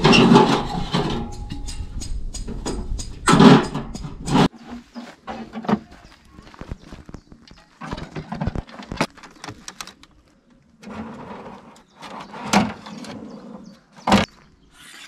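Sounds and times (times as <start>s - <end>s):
scraping and rustling: 2.5s - 14.0s
clicks and knocks of parts: 7.8s - 10.2s.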